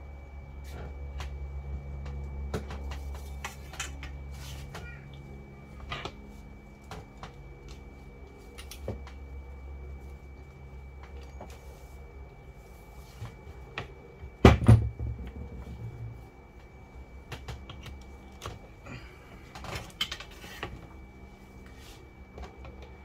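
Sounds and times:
tools and cables clicking and rustling: 0:06.9 - 0:09.2, 0:19.5 - 0:20.9.

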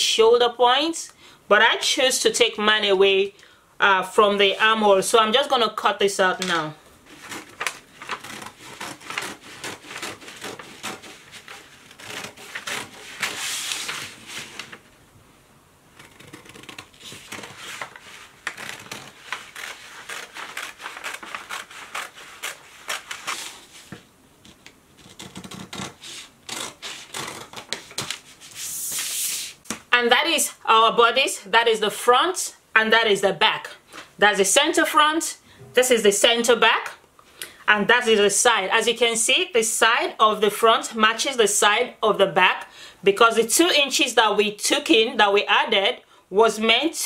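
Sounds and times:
paper rustling: 0:06.4 - 0:15.0, 0:15.9 - 0:29.8
scissors snipping paper: 0:07.2 - 0:13.4, 0:16.0 - 0:23.6.

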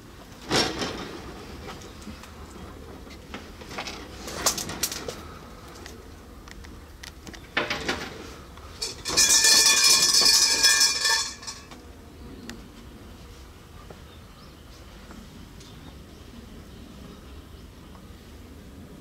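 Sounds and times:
shrine bell jangling: 0:08.8 - 0:11.7.

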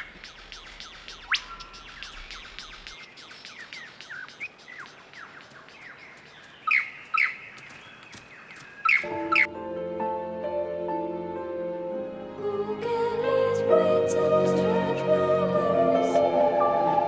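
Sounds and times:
lyrebird singing: 0:00.0 - 0:09.5
music: 0:09.0 - 0:17.0.

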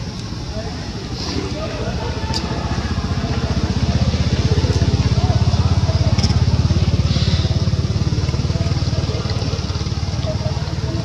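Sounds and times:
small engine running: 0:02.4 - 0:11.0.

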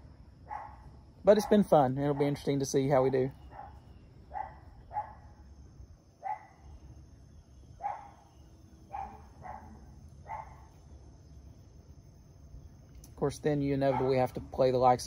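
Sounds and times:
dog barking: 0:00.5 - 0:00.8, 0:01.4 - 0:02.4, 0:03.5 - 0:05.3, 0:06.2 - 0:06.6, 0:07.8 - 0:08.2, 0:08.9 - 0:10.7, 0:13.9 - 0:14.2.

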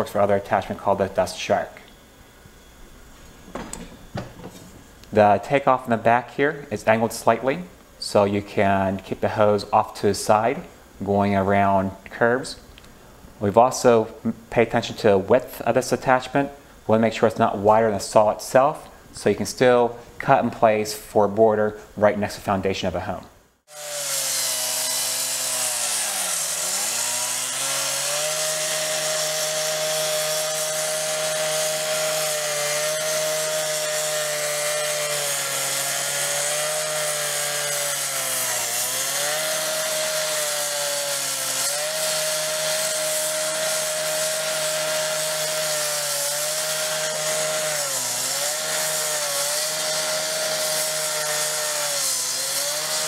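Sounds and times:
blade cutting concrete hiss: 0:23.7 - 0:53.0
gas cut-off saw engine: 0:23.7 - 0:53.0.

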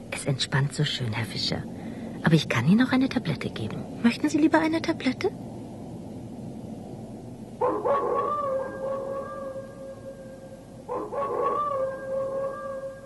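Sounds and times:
long rising howls: 0:07.6 - 0:13.0.

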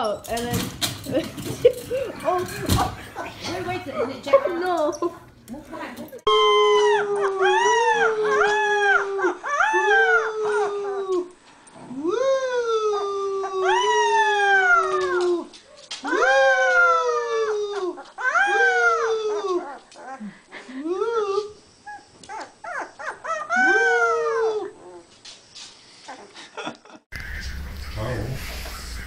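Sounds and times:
puppy howling: 0:06.3 - 0:11.4, 0:12.0 - 0:20.2, 0:22.3 - 0:25.1
man howling: 0:06.3 - 0:15.5, 0:16.1 - 0:19.7, 0:23.5 - 0:24.8.

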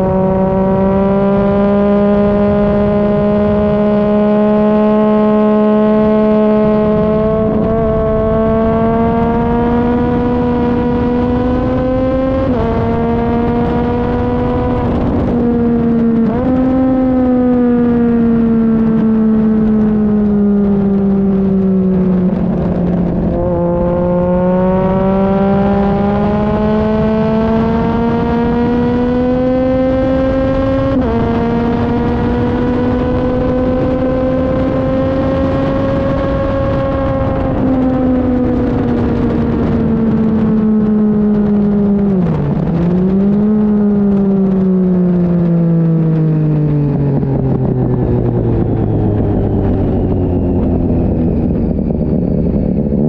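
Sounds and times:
motorcycle engine revving: 0:00.0 - 0:53.0
wind rush: 0:00.0 - 0:53.0.

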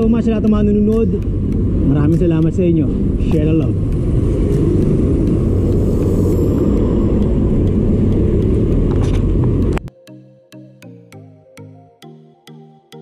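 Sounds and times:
bicycle road noise: 0:00.0 - 0:09.9
wind rumble: 0:00.0 - 0:09.9.

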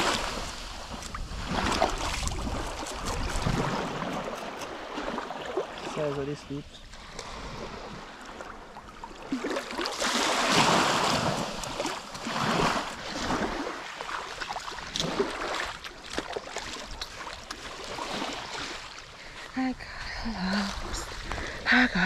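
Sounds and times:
wind on microphone: 0:00.0 - 0:04.9
waves washing onto shore: 0:00.0 - 0:22.0.

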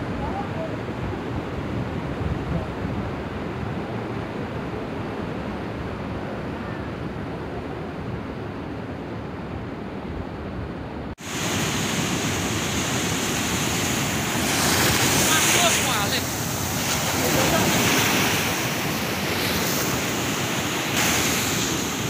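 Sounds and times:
surf washing over sand: 0:11.2 - 0:22.0
waterfall crashing onto rocks: 0:11.2 - 0:22.0.

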